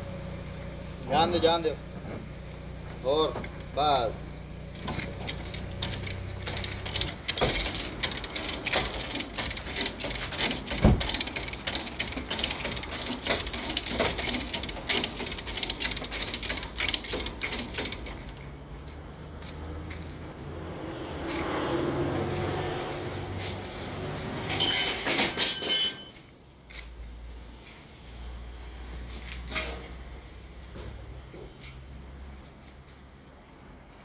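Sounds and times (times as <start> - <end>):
chain hoist ratcheting clicks: 4.8 - 18.4.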